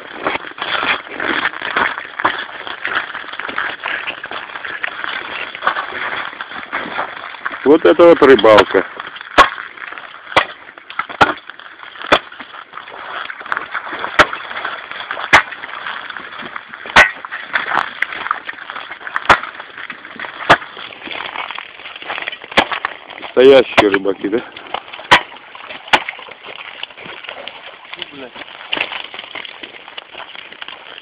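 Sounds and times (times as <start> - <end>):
sharp chopping blows: 25.0 - 26.2.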